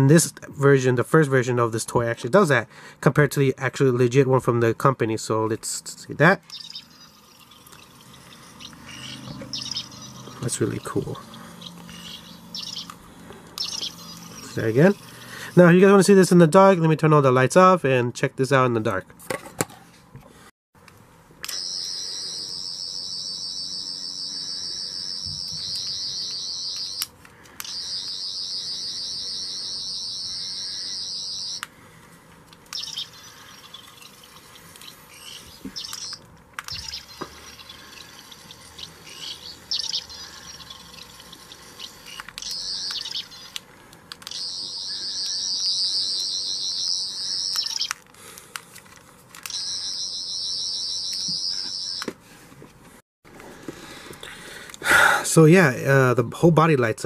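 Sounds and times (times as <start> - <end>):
toy screwdriver electronic warble: 11.6 - 13.0, 13.6 - 14.6, 21.4 - 31.7, 32.7 - 43.6, 44.2 - 48.0, 49.4 - 52.1.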